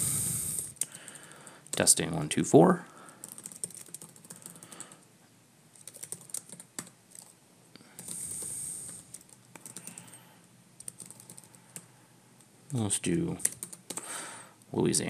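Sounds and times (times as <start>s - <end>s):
keyboard typing: 0.6s - 1.9s, 3.1s - 5.0s, 5.8s - 7.4s, 8.0s - 10.2s, 10.8s - 11.9s, 13.4s - 14.1s.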